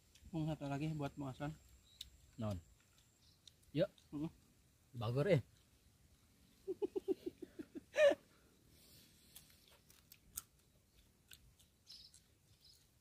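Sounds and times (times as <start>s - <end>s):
man laughing: 6.6s - 8.3s
crisp clicks and crunches: 9.3s - 12.9s.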